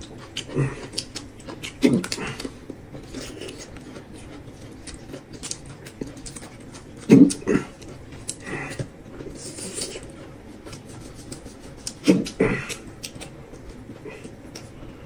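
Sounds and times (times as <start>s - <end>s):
chewing and mouth noises: 0.0s - 15.0s.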